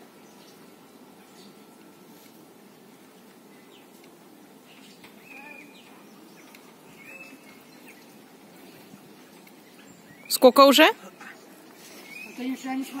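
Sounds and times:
faint outdoor background hum: 0.0s - 13.0s
high bird chirps: 11.9s - 12.7s.

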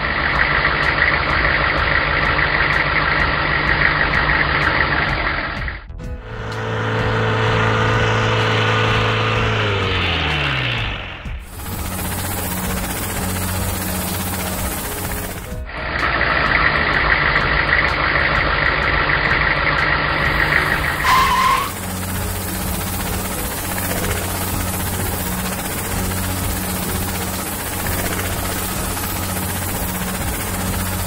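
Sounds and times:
cartoon engine hum: 0.0s - 31.0s
high rushing sound: 6.0s - 17.6s, 20.1s - 31.0s
short tone: 21.0s - 21.8s.

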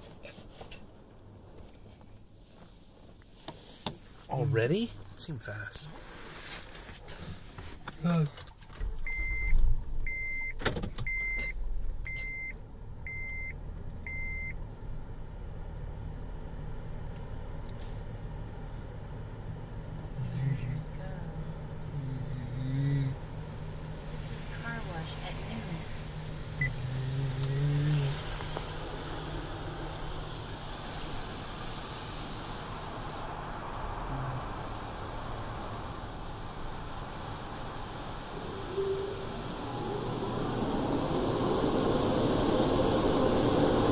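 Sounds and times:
low car rumble: 7.1s - 43.9s
low droning tone: 20.2s - 43.9s
high electronic beep: 38.4s - 40.6s.

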